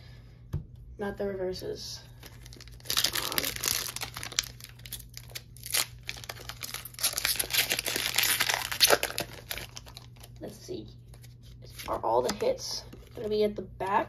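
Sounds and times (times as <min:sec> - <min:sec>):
foil wrapper crinkling and tearing: 0:02.2 - 0:10.4.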